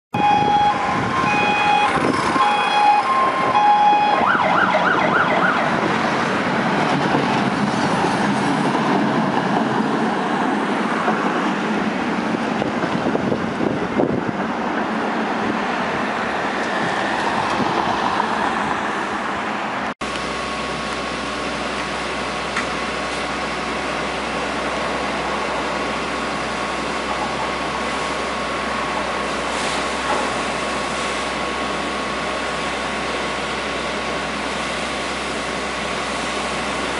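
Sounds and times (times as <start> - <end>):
fire engine siren: 0.2 - 6.8
diesel engine running: 0.2 - 36.9.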